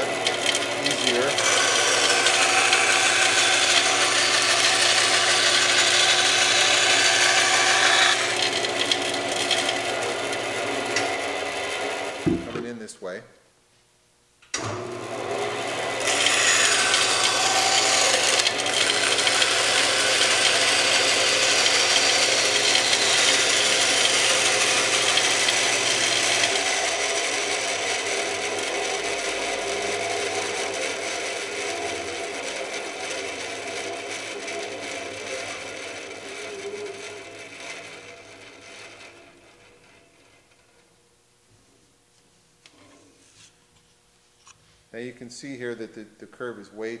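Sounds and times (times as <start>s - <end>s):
band saw running: 0.0s - 12.7s, 14.6s - 40.8s
saw blade cutting board: 0.0s - 12.7s, 15.0s - 39.7s.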